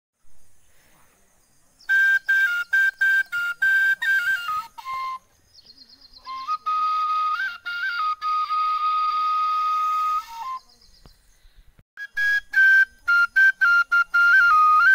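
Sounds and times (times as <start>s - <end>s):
bamboo flute playing: 1.8s - 5.4s, 6.2s - 10.8s, 12.0s - 14.9s.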